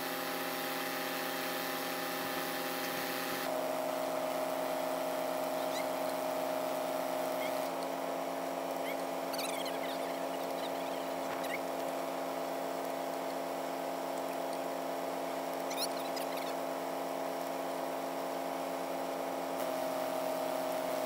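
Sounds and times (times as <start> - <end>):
machine droning: 0.0 - 21.0
high chirps: 8.8 - 11.7, 15.7 - 16.6.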